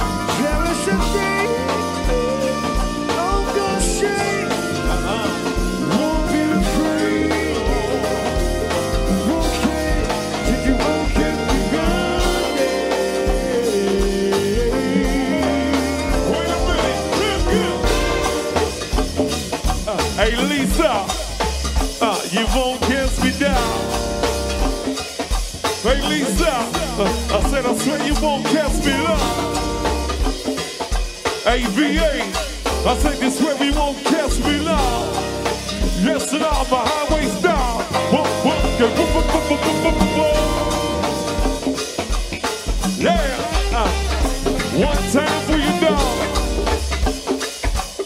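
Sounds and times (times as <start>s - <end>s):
person singing: 0.0s - 21.3s, 22.0s - 24.1s, 25.8s - 30.0s, 31.4s - 41.8s, 42.9s - 46.8s
live band playing: 0.0s - 48.0s.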